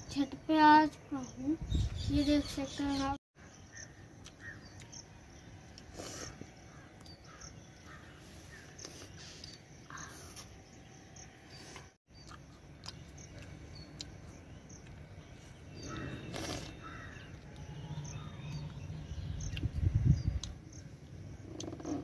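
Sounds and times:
crows cawing: 16.8s - 17.3s.

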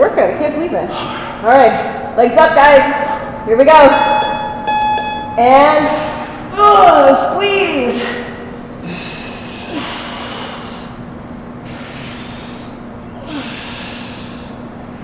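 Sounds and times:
person breathing hard: 8.8s - 11.0s, 11.7s - 15.0s.

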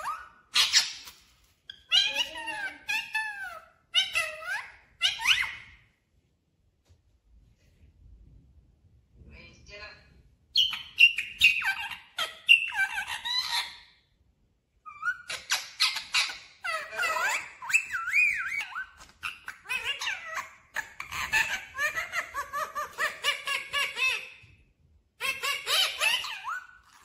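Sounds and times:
parakeet chattering: 0.0s - 5.8s, 10.6s - 13.9s, 14.9s - 24.5s, 25.2s - 27.0s.

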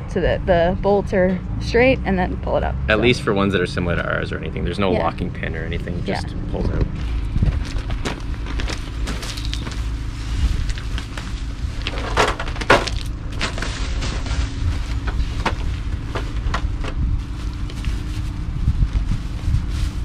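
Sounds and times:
wind buffeting microphone: 4.8s - 12.0s, 14.0s - 20.0s
knocks and clatter of rudder: 11.8s - 14.4s.

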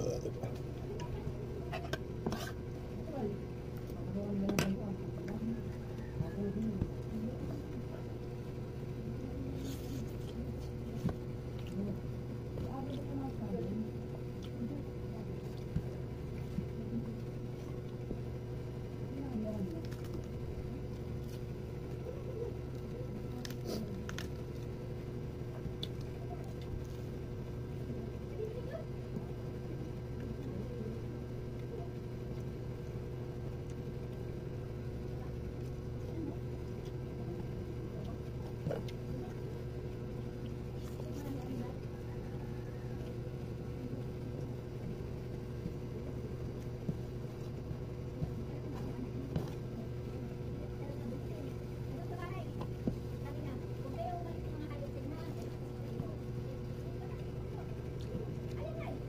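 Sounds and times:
steady low hum: 0.0s - 59.0s
leafy greens being chewed: 8.8s - 28.2s, 29.0s - 59.0s.

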